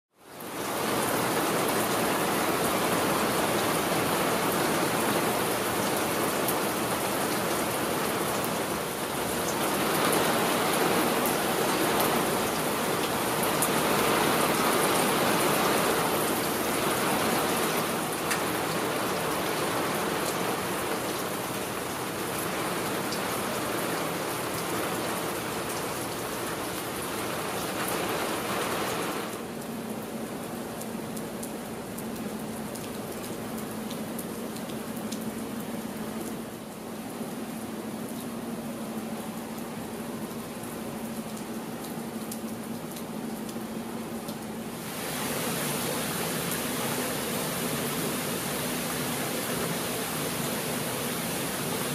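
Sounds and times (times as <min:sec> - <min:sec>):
heavy rain falling: 0:00.2 - 0:51.9
water drips ticking: 0:29.4 - 0:36.8, 0:39.2 - 0:44.8.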